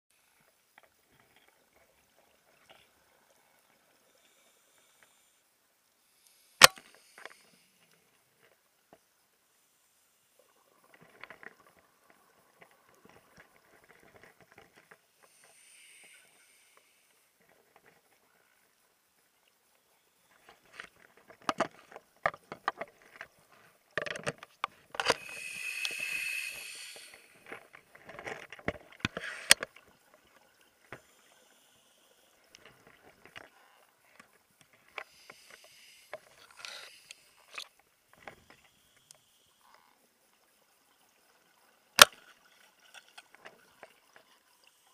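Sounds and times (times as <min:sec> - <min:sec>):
regulator hissing inhalation: 0:15.2 - 0:17.3, 0:25.0 - 0:27.5, 0:35.0 - 0:37.6.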